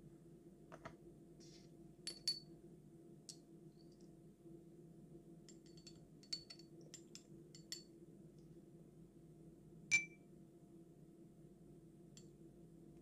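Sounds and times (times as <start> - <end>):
faint steady hum: 0.0 - 13.0
glass bottle clink: 9.9 - 10.2.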